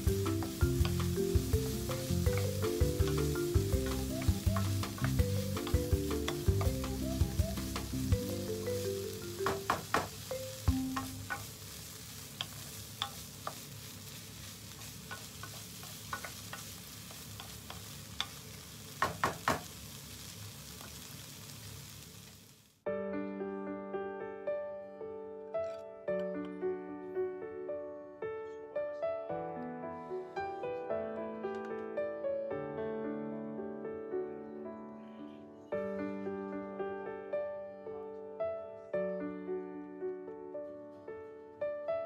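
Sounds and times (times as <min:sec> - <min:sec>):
soft piano background music: 0:00.0 - 0:11.6, 0:22.9 - 0:42.0
vegetables sizzling in a frying pan: 0:00.0 - 0:22.8.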